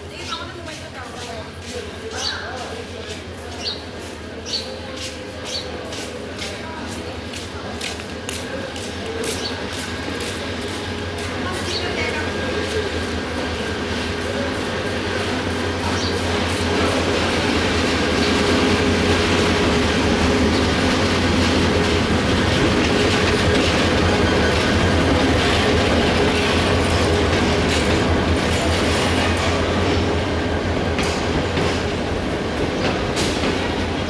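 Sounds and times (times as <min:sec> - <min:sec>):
diesel locomotive passing slowly: 0:00.0 - 0:34.0
train wheels clattering over rail joints: 0:15.1 - 0:34.0.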